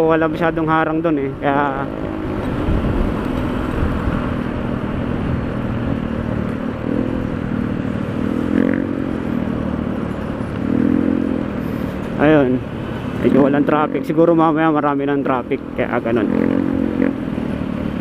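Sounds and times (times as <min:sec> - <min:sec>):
scooter engine drone: 0:00.0 - 0:18.0
wind rush on microphone: 0:00.5 - 0:08.6.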